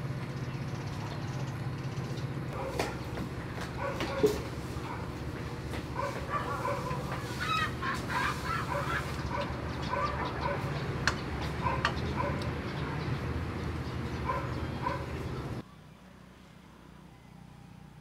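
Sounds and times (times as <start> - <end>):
poultry calling: 6.0 - 13.3.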